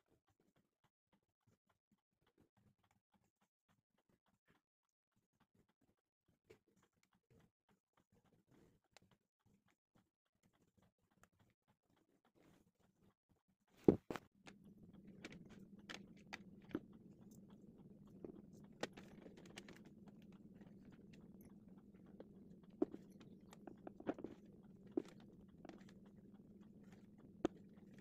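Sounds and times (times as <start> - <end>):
faint steady hum: 13.8 - 28.0.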